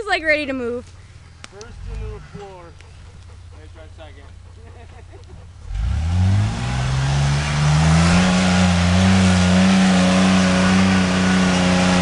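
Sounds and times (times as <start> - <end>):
truck engine revving hard: 5.4 - 12.0.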